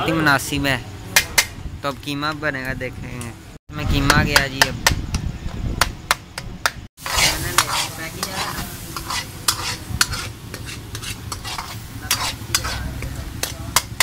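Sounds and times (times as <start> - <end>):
ladle scraping wok: 7.0 - 14.0
meat sizzling in oil: 7.0 - 14.0.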